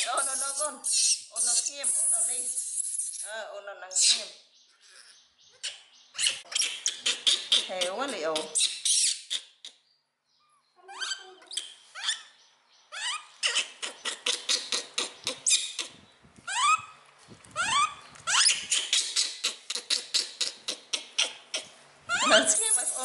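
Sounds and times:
kittens mewing: 0:17.6 - 0:23.0.

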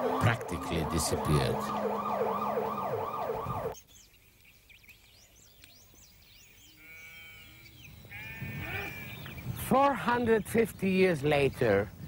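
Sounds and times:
emergency vehicle siren: 0:00.0 - 0:03.8.

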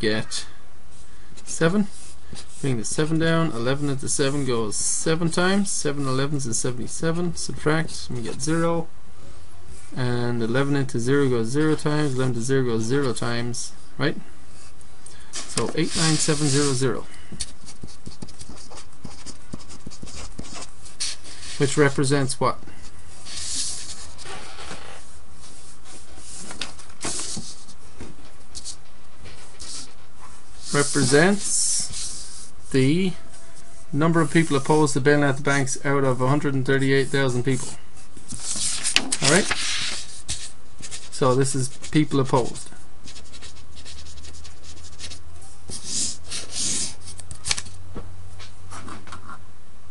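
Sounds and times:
steady low hum: 0:00.0 - 0:49.9
scratchy writing strokes: 0:15.4 - 0:22.0, 0:23.2 - 0:27.8, 0:28.5 - 0:34.8, 0:37.0 - 0:47.3.

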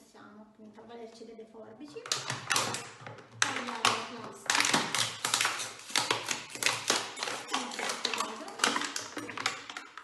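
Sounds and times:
scissors snipping plastic bottle: 0:03.5 - 0:10.0.

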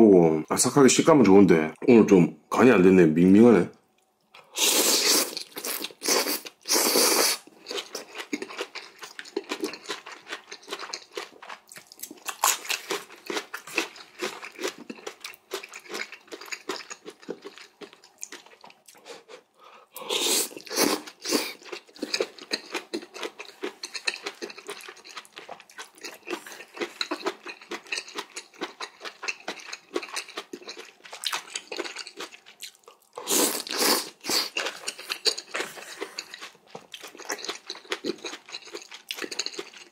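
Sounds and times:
wet chewing with crunches: 0:05.1 - 0:19.4, 0:20.5 - 0:39.9.

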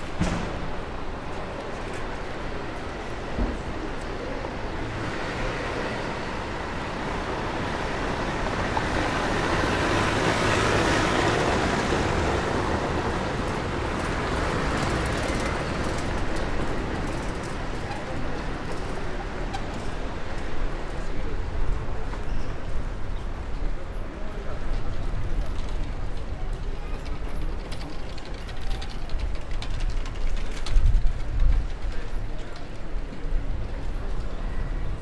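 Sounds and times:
street traffic noise: 0:00.0 - 0:35.0.

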